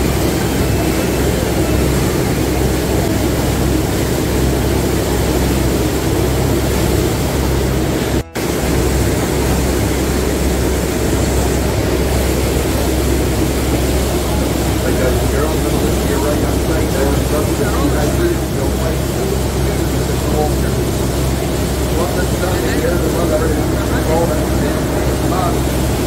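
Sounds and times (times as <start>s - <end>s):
boat engine drone: 0.0s - 26.0s
wind and water rushing: 0.0s - 26.0s.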